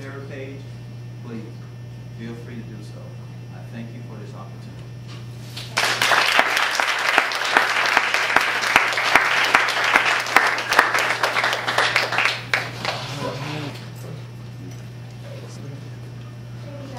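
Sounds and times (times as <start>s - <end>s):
audience applauding: 5.7s - 13.7s.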